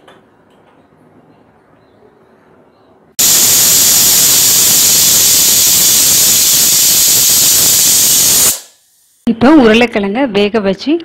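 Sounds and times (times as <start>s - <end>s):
pressure cooker whistle hissing: 3.2s - 9.0s.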